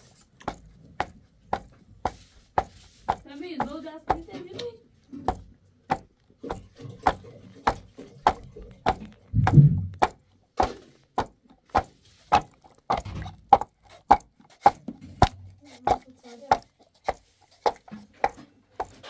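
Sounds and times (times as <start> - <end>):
knife chopping on cutting board: 5.2 - 19.0.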